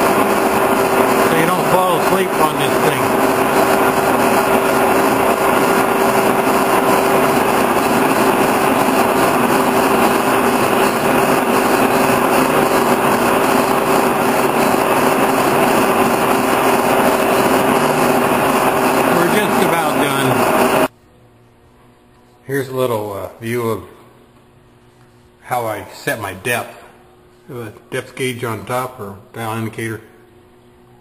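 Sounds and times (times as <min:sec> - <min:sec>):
boring mill machine drone: 0:00.0 - 0:20.9.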